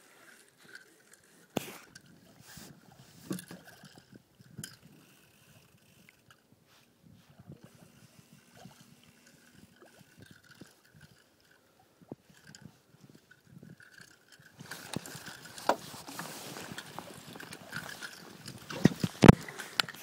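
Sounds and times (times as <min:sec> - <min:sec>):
faint rustles: 0:04.9 - 0:20.0.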